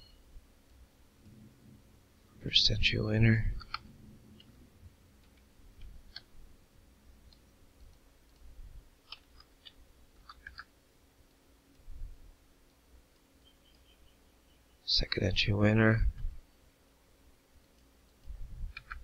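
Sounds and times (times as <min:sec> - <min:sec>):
mouse and keyboard clicks: 0:03.6 - 0:04.5, 0:05.2 - 0:06.3, 0:07.3 - 0:10.7, 0:17.6 - 0:19.0.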